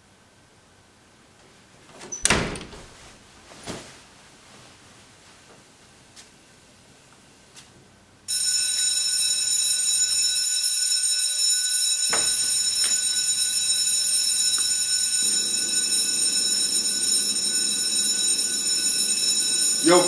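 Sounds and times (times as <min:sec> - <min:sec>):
mobile phone ringing: 0:08.3 - 0:20.0
knocks: 0:12.1 - 0:13.0.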